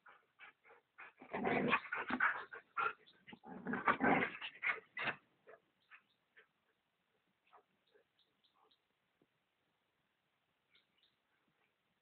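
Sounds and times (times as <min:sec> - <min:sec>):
dogs play-fighting vocalizing: 0:01.0 - 0:05.2.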